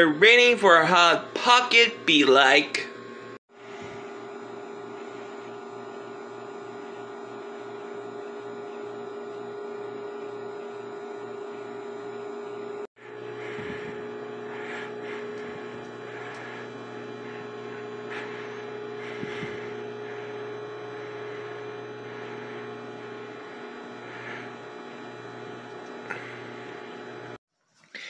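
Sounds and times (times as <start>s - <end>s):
microwave oven humming: 0.0s - 27.4s.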